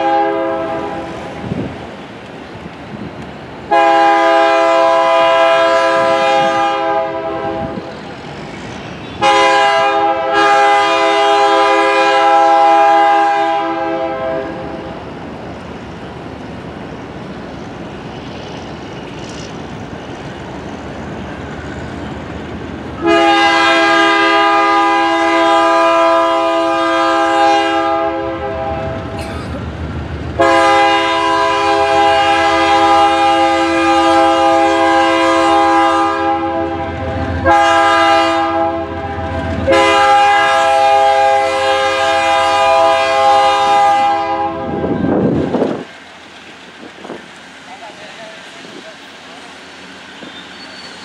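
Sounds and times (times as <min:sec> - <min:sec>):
locomotive horn blasts: 0:00.0 - 0:01.2, 0:03.7 - 0:07.8, 0:09.2 - 0:14.8, 0:23.0 - 0:29.2, 0:30.4 - 0:45.2
locomotive and train running: 0:00.0 - 0:51.0.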